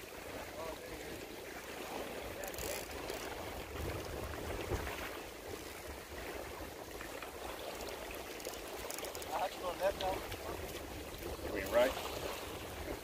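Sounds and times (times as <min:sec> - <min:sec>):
water lapping against rocks: 0:00.0 - 0:13.0
wind rumble on microphone: 0:00.0 - 0:13.0.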